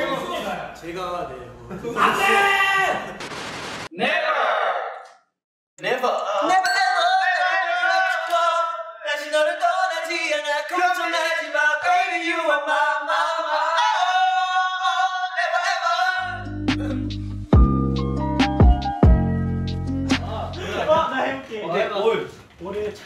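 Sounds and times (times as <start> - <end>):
men singing a cappella: 7.3 - 17.1
recorded music with deep bass: 16.3 - 20.6.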